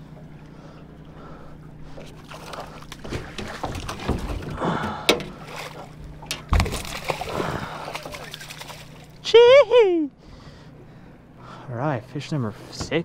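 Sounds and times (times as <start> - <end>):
water sloshing against boat: 0.0 - 9.6, 10.2 - 13.0
steady low hum: 0.0 - 13.0
knocks on boat: 3.0 - 5.4, 6.1 - 6.8.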